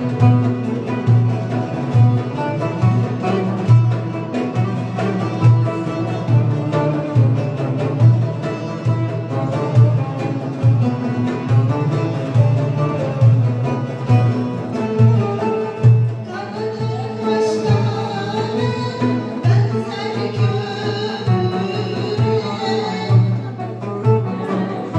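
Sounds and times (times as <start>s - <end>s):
folk music with strings and drums: 0.0s - 24.9s
woman singing: 16.3s - 24.9s.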